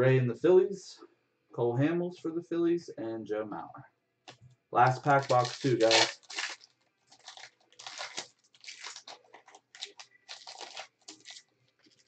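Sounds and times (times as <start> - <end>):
foil wrapper crinkling: 4.9 - 12.0.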